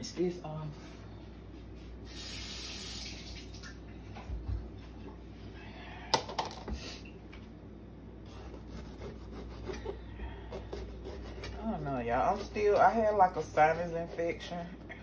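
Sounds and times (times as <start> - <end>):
kitchen tap running: 2.1 - 4.3.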